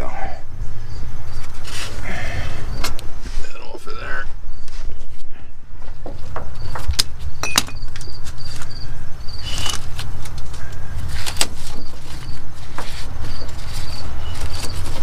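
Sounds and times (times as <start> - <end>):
high bird chirps: 6.5 - 9.9.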